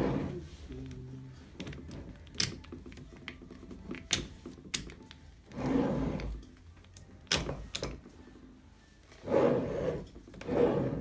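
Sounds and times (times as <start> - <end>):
metal clicks and knocks: 1.6 - 5.3.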